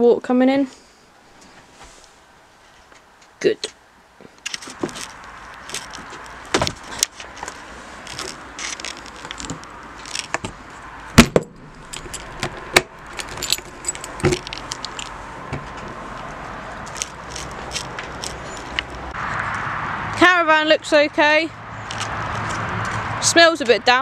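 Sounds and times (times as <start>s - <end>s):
sharp knocks: 11.2s - 11.8s
keys jangling at a door lock: 11.8s - 12.5s, 13.1s - 15.1s.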